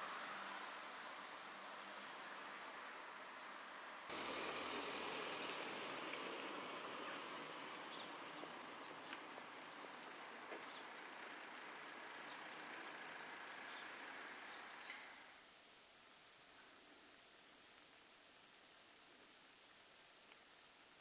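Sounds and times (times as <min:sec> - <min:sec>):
outdoor background noise: 0:00.0 - 0:21.0
small bird chirping: 0:05.4 - 0:09.2, 0:09.8 - 0:15.1.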